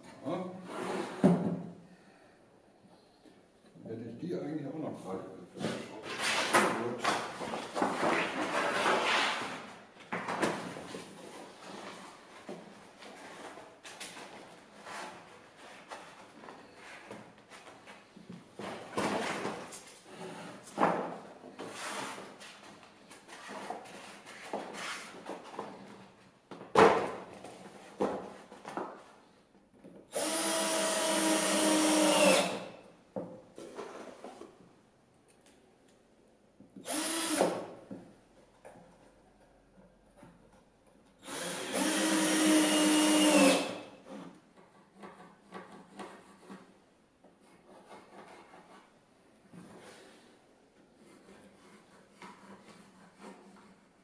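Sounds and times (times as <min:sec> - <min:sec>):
cordless drill boring into wood: 0:30.1 - 0:32.6, 0:36.8 - 0:37.6, 0:41.2 - 0:43.8
pencil scratching on wood: 0:44.1 - 0:49.0, 0:51.0 - 0:54.0.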